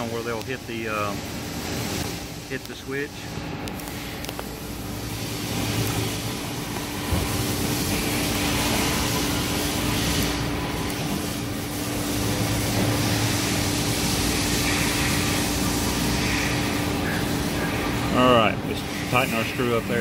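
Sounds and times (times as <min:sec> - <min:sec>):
mechanical hum: 0:00.0 - 0:20.0.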